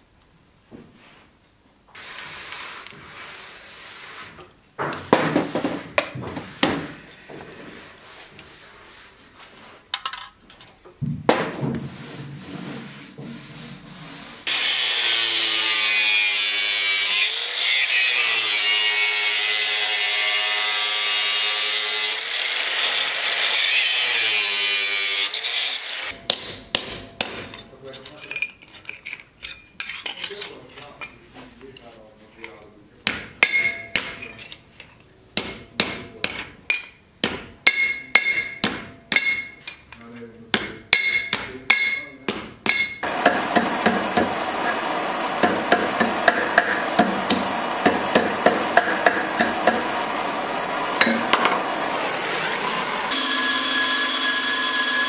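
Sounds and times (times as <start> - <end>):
angle grinder cutting steel: 14.5 - 26.2, 43.0 - 55.0
scraping and knocks of steel: 41.0 - 51.9
hammer taps on anvil: 45.4 - 49.9.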